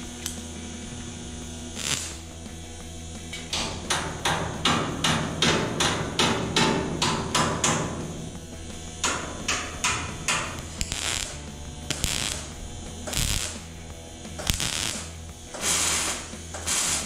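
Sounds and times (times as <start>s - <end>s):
hammer tapping on sheet metal: 3.3s - 13.6s.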